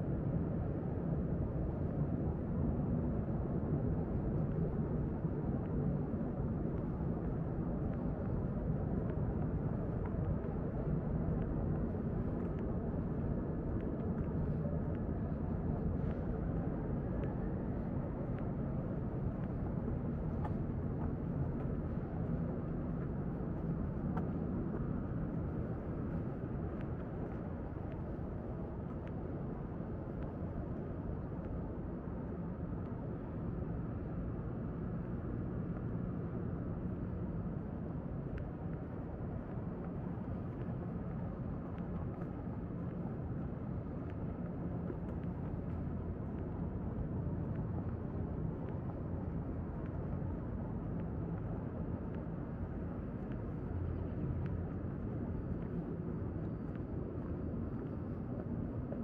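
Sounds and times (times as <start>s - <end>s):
faint ticks: 13.7s - 29.3s.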